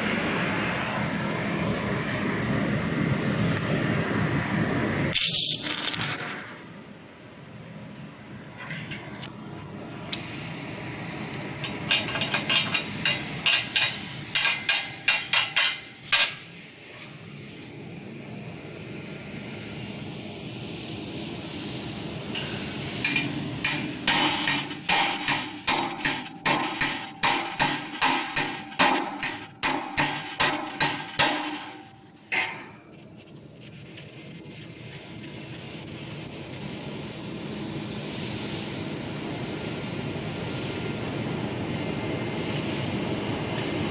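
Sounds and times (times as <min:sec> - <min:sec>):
hammer clanging on steel: 0:11.7 - 0:16.4, 0:23.0 - 0:32.8.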